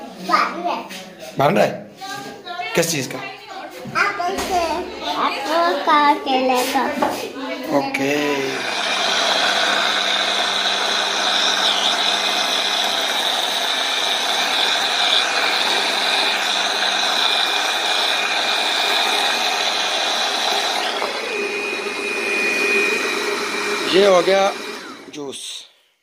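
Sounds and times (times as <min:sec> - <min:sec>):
electric blender running: 0:07.8 - 0:25.5.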